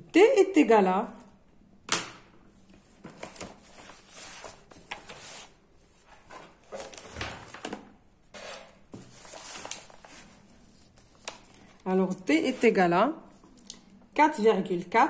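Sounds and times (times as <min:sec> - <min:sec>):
paper rustling: 0:02.7 - 0:12.8.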